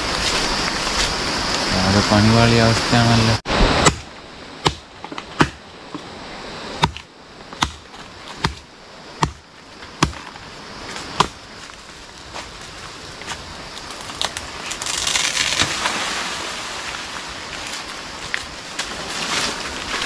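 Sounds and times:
blade chopping into palm trunk: 0:03.5 - 0:06.0, 0:06.8 - 0:08.6, 0:09.2 - 0:09.4, 0:10.0 - 0:10.3, 0:11.2 - 0:11.4.

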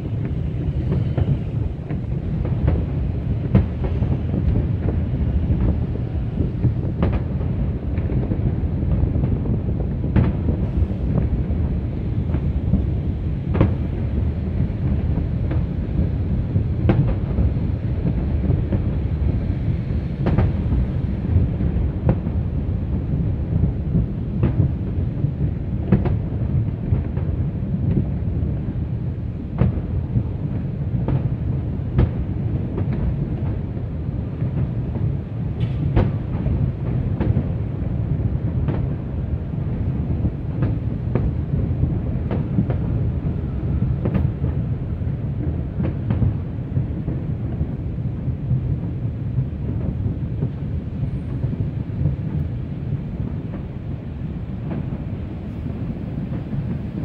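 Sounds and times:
low rumble: 0:00.0 - 0:17.4
distant fireworks bangs: 0:00.0 - 0:19.3, 0:20.2 - 0:28.9, 0:29.5 - 0:57.0.

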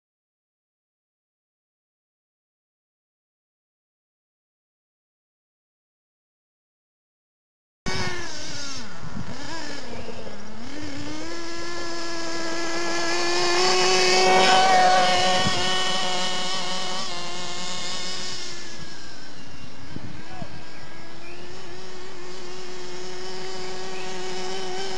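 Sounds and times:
model engine high whine: 0:07.9 - 0:24.9.

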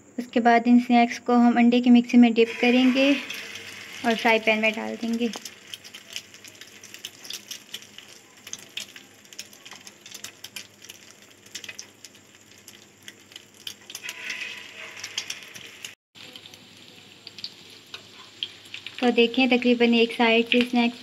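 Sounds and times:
oil sizzling in a frying pan: 0:02.4 - 0:21.0
oil popping: 0:03.3 - 0:19.1.

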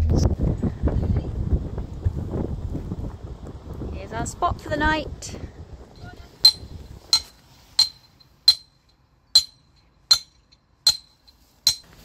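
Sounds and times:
hammer striking metal pin: 0:06.4 - 0:12.0.

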